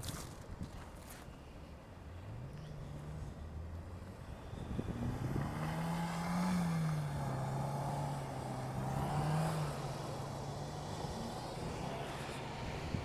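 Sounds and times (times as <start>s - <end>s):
car engine at high revs: 2.2s - 13.0s.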